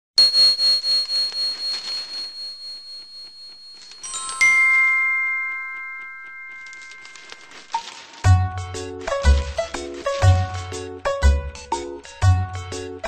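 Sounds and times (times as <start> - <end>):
pulsing high ringing tone: 0.2 - 4.4.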